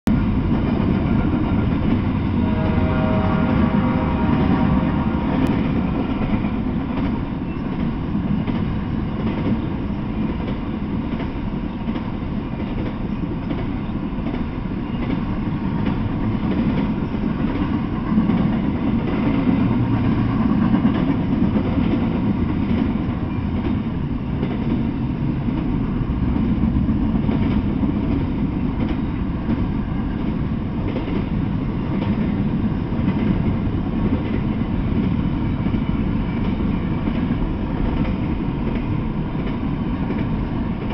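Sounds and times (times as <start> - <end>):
freight train rolling past: 0.1 - 40.9
wheels clicking over rail joints: 5.4 - 40.9.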